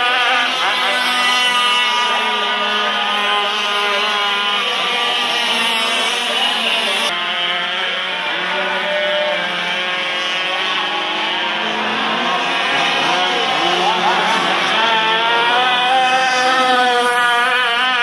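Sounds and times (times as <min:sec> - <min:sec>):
model boat engines droning: 0:00.0 - 0:18.0.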